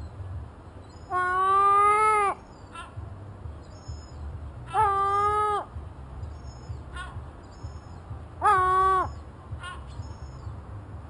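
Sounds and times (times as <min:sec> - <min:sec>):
gull crying: 0:04.7 - 0:05.7.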